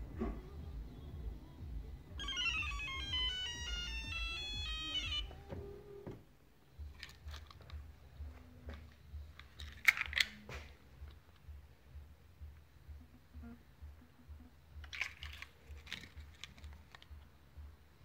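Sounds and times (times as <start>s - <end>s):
electronic beeping melody: 2.1s - 5.7s.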